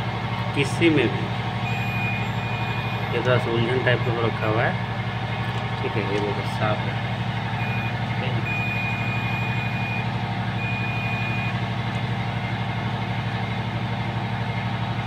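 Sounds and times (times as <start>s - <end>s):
low machinery hum: 0.0s - 15.0s
multimeter continuity beeping: 1.6s - 3.2s, 7.6s - 10.0s, 10.6s - 11.6s.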